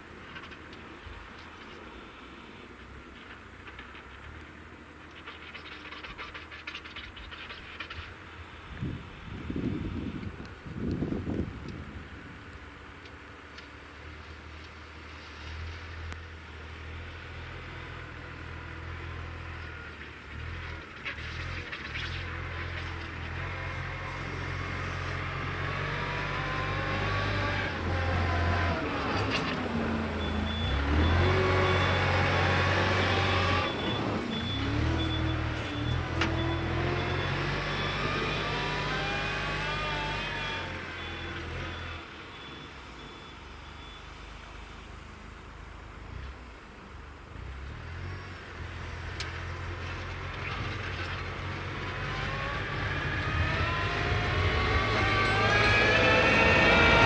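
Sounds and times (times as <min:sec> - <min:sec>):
wheel loader diesel engine: 0:00.0 - 0:57.0
reversing alarm beeping: 0:30.0 - 0:44.4.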